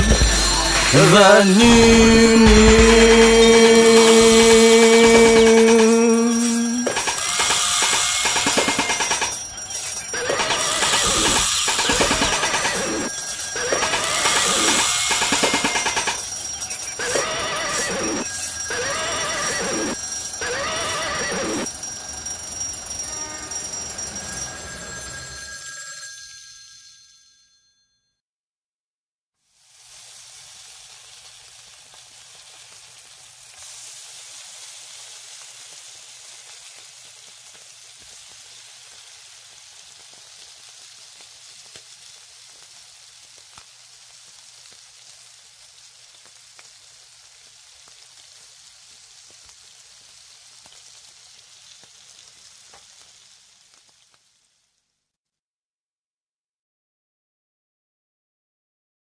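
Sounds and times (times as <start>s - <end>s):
crackling hiss with small pops: 35.0s - 54.9s.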